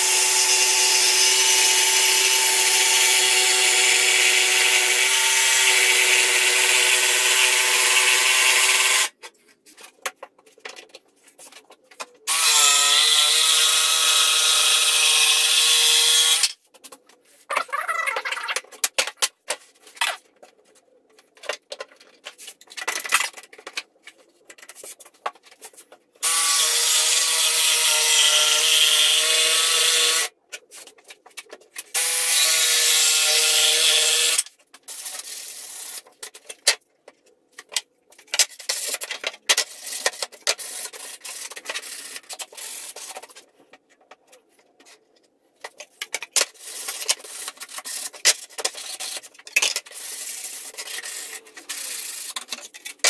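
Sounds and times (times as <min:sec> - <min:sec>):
jigsaw cutting plywood: 0:00.0 - 0:09.1, 0:12.3 - 0:16.5, 0:26.2 - 0:30.3, 0:32.0 - 0:34.4.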